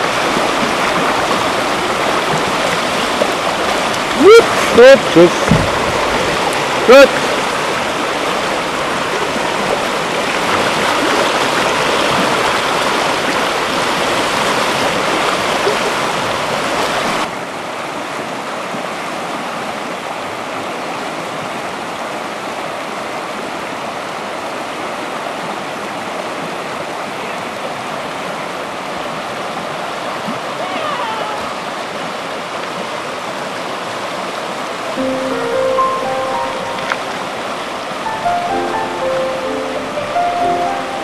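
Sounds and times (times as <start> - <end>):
water rushing over rocks: 0.0 - 41.0.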